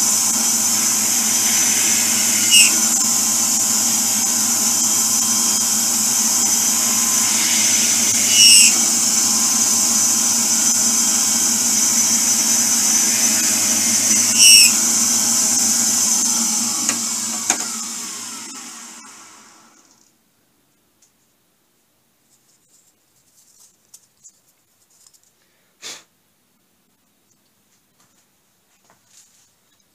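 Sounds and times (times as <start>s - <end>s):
drill bit squealing: 0.0s - 19.8s
drill press drilling wood: 0.0s - 19.9s
motor spinning down: 0.0s - 20.1s.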